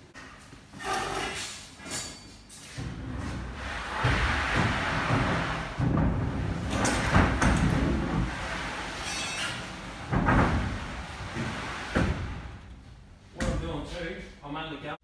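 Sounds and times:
rumbling thuds and knocks: 0:02.9 - 0:09.0, 0:09.8 - 0:12.7.

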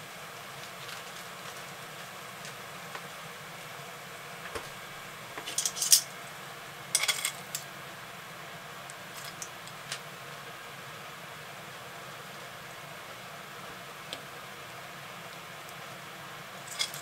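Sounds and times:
metal tongs clattering: 0:05.5 - 0:06.1, 0:07.0 - 0:07.6, 0:16.7 - 0:17.0.

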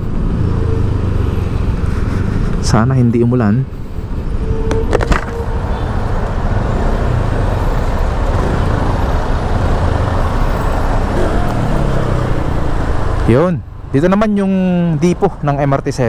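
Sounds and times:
surrounding traffic: 0:00.0 - 0:16.0
motorcycle engine: 0:05.3 - 0:13.4.

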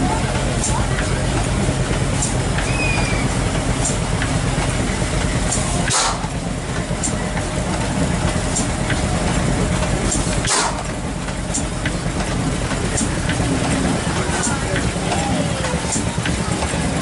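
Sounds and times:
stationary engine running: 0:00.0 - 0:17.0
sharp click: 0:05.5 - 0:06.2, 0:10.1 - 0:10.9.

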